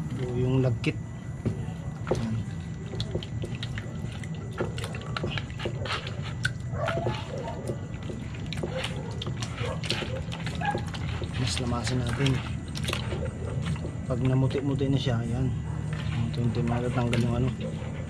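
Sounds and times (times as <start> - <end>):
wet squelches of kneading eels: 0.0 - 18.0.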